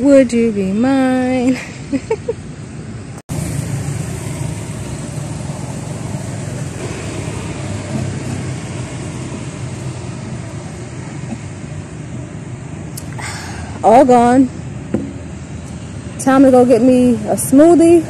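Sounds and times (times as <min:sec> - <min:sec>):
road traffic: 0:00.0 - 0:18.0
vehicle engine humming: 0:00.0 - 0:18.0.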